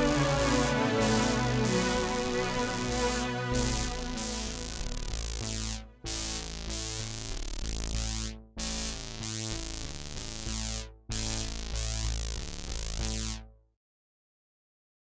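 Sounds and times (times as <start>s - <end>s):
electronic synthesizer music: 0.0s - 7.1s.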